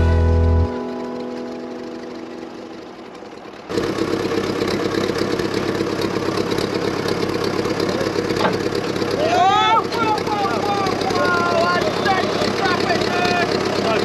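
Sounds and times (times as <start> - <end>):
background music: 0.0 - 3.0
engine idling with fast chug: 0.0 - 14.0.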